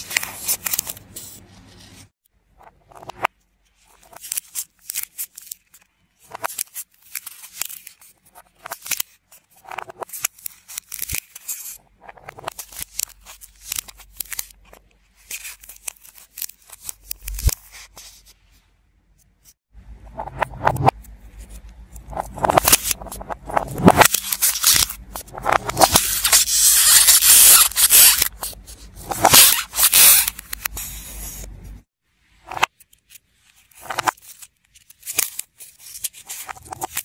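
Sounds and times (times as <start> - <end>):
scissors crunching dry clay: 10.0 - 11.7.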